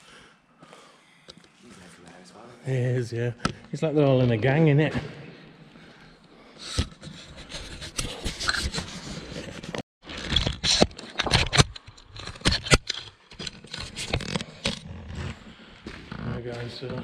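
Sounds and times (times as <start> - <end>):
camera handling scrapes and knocks: 6.6 - 14.9.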